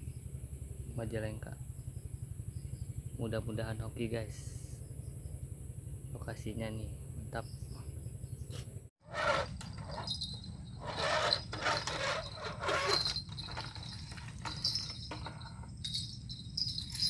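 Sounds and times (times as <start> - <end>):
rustling and handling noise: 9.1 - 17.0.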